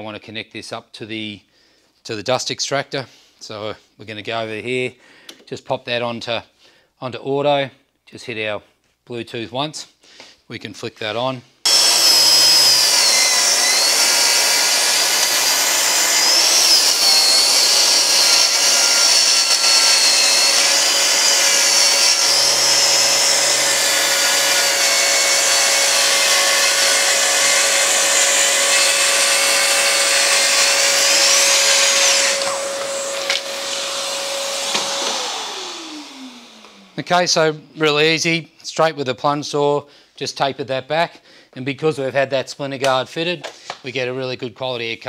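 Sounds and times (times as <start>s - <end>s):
circular saw cutting wood: 11.6s - 38.1s
dust extractor running: 11.7s - 37.0s.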